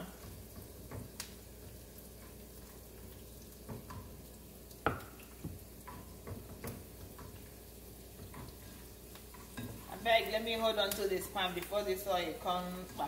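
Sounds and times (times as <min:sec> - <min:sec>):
onions sizzling in a pan: 0:00.0 - 0:13.0
spatula knocking against pan: 0:04.8 - 0:07.4.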